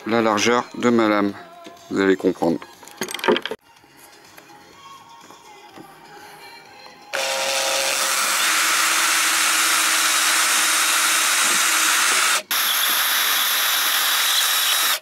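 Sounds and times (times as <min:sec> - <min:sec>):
electric drill boring through plywood: 0:07.2 - 0:15.0.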